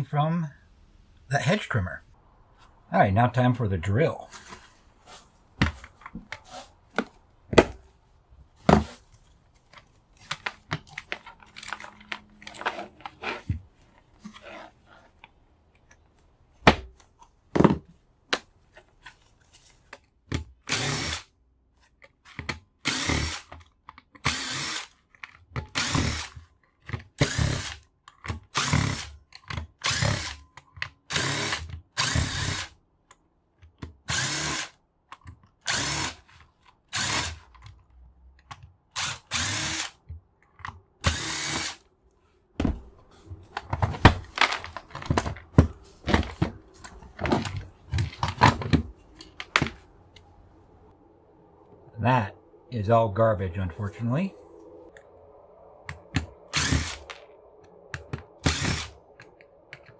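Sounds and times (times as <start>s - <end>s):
clicks and clatter of parts: 8.6s - 16.3s, 23.4s - 24.3s, 24.9s - 32.3s, 43.4s - 50.3s, 55.9s - 59.9s
electric drill bursts: 20.7s - 21.3s, 22.8s - 23.5s, 24.2s - 24.9s, 25.8s - 26.3s, 27.2s - 27.8s, 29.8s - 30.4s, 31.1s - 32.7s, 34.1s - 34.7s, 35.7s - 36.2s, 36.9s - 37.4s, 39.0s - 40.0s, 41.0s - 41.8s, 56.5s - 57.0s, 58.4s - 58.9s.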